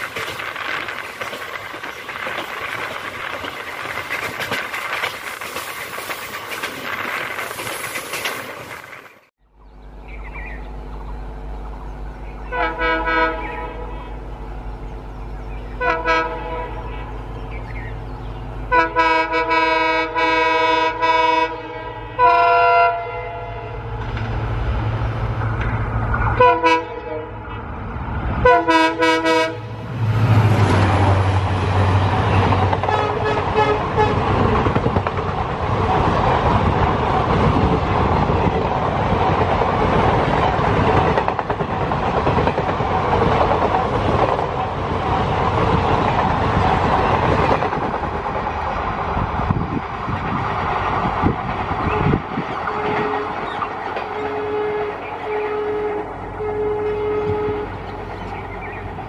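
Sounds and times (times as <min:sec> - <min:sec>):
train wheels clacking over rail joints: 0:00.0 - 0:09.2, 0:30.4 - 0:48.6, 0:49.6 - 0:54.9
diesel engine drone: 0:09.4 - 0:18.8, 0:23.3 - 0:28.8
locomotive horn blasts: 0:12.4 - 0:14.4, 0:15.7 - 0:17.2, 0:18.6 - 0:24.1, 0:26.4 - 0:27.5, 0:28.4 - 0:29.9, 0:32.8 - 0:34.3, 0:51.8 - 0:53.4, 0:54.0 - 0:58.1.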